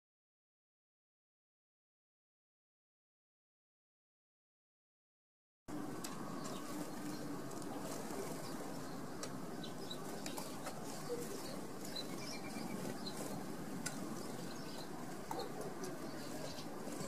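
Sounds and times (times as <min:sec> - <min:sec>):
songbirds chirping: 0:05.7 - 0:17.0.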